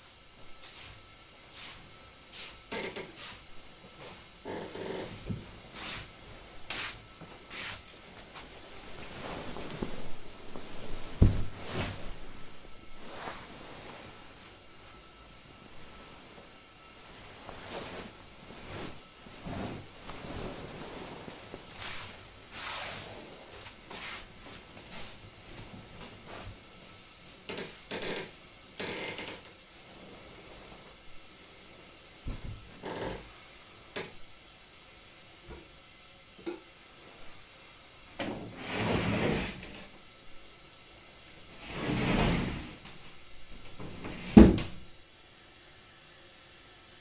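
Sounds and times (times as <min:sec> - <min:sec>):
feet sliding across mats: 0:00.0 - 0:14.6, 0:15.7 - 0:27.0
cloth rustling: 0:04.0 - 0:26.7
socked feet stepping on mats: 0:06.7 - 0:12.2
dull thump of kneeling: 0:11.1 - 0:12.0.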